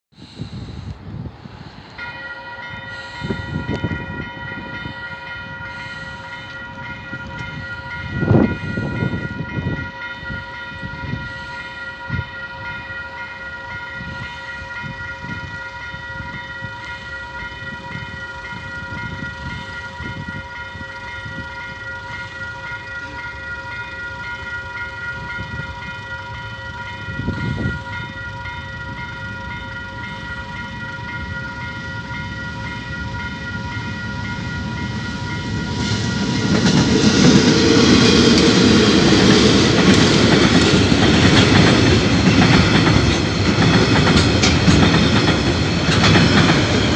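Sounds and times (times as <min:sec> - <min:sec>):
level crossing bell ringing: 0:02.0 - 0:36.6.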